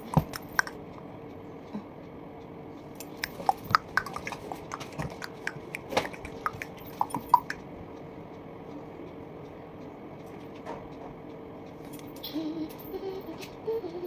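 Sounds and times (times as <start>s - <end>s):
faint steady hum: 0.0s - 14.0s
small sharp clicks and taps: 0.1s - 0.8s, 3.0s - 7.6s.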